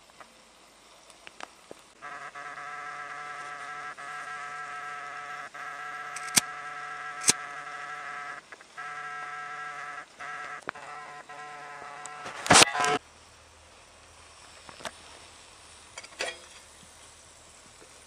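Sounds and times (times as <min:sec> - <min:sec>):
insect wings buzzing: 0:01.0 - 0:13.0
sharp clicks: 0:06.1 - 0:06.5, 0:07.2 - 0:07.4.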